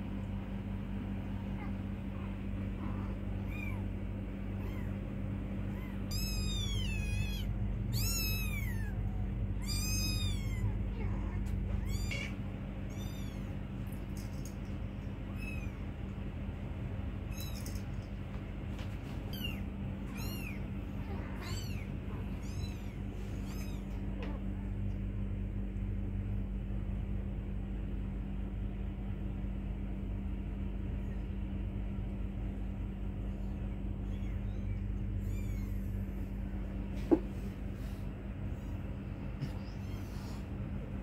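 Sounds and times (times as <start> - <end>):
kittens mewing: 1.1 - 16.2, 19.2 - 24.6, 33.2 - 36.2, 39.1 - 40.8.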